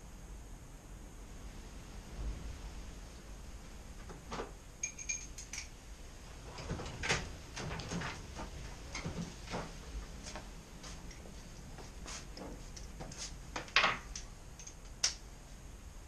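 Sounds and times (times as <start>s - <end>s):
short ringing pings: 4.8s - 5.3s
tools and metal parts knocking: 4.8s - 5.7s.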